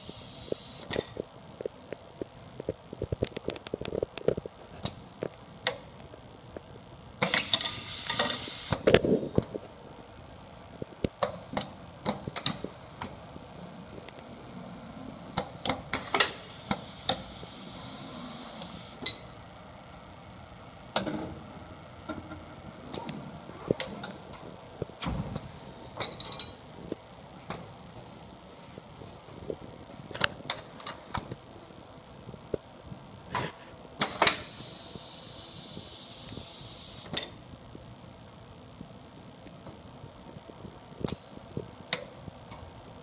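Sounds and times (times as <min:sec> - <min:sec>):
compressed air hissing: 0:07.2 - 0:08.8, 0:15.6 - 0:19.0
pneumatic cylinders and valves clacking: 0:07.2 - 0:09.1, 0:15.4 - 0:19.1, 0:33.3 - 0:37.2.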